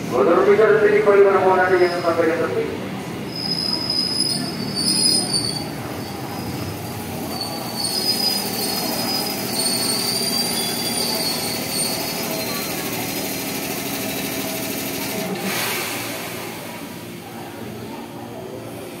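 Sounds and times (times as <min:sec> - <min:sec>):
train cars rumbling: 0:00.0 - 0:19.0
high-pitched wheel squeal: 0:03.3 - 0:12.8.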